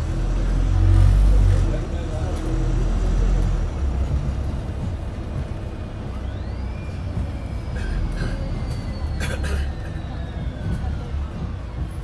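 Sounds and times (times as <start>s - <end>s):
bus engine and road rumble: 0.0s - 12.0s
engine whine: 0.0s - 12.0s.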